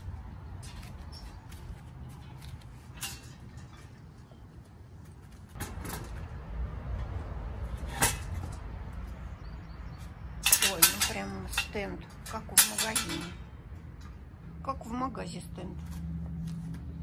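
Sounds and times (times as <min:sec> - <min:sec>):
metal frame creaking: 0:00.5 - 0:06.4, 0:10.0 - 0:14.2
sharp metal clacks: 0:10.4 - 0:13.4.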